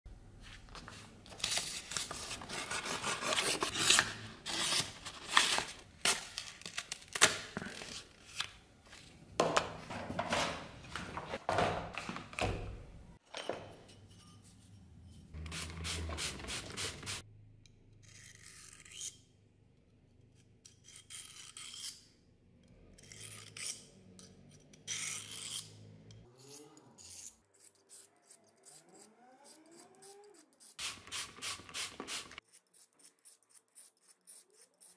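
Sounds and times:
handling sounds: 0:00.4 - 0:14.7
knife blade scraping: 0:18.0 - 0:19.3, 0:20.4 - 0:22.2, 0:23.0 - 0:30.9, 0:32.1 - 0:34.9.

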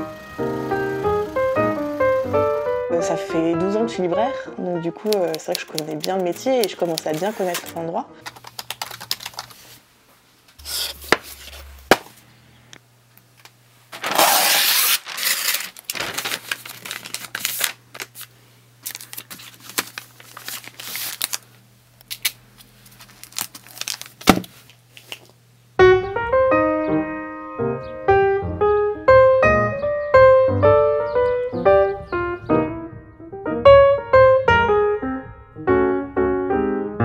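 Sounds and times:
faint steady hum: 0:00.0 - 0:03.2, 0:08.0 - 0:25.8
paper rustling and crinkling: 0:05.2 - 0:09.8, 0:10.6 - 0:12.1, 0:13.9 - 0:21.5, 0:22.1 - 0:25.3
paper tearing: 0:05.3 - 0:09.7, 0:10.6 - 0:12.0, 0:13.9 - 0:21.4.

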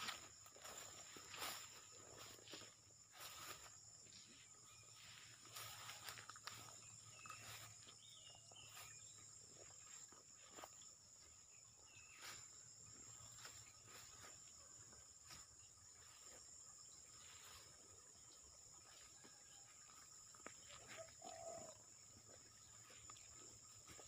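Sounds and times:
insect chorus: 0:00.0 - 0:24.0.

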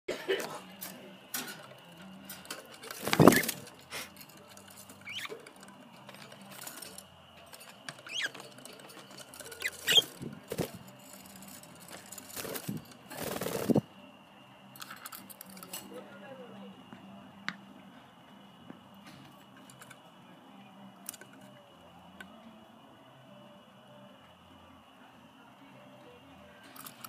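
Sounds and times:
budgerigars chirping: 0:08.1 - 0:08.4.

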